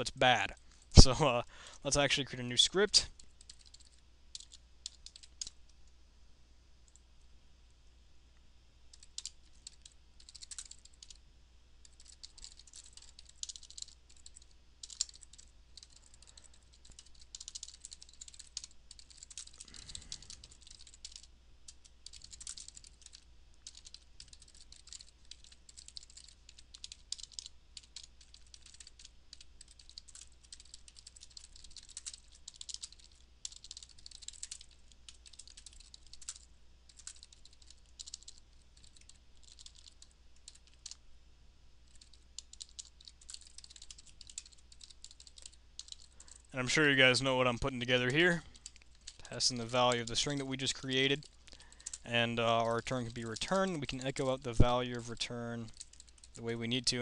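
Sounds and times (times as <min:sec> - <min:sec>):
faint low hum: 0:00.0 - 0:57.0
fast typing on a keyboard: 0:03.1 - 0:05.6, 0:08.9 - 0:11.2, 0:11.8 - 0:41.0, 0:41.9 - 0:47.1, 0:47.7 - 0:56.9.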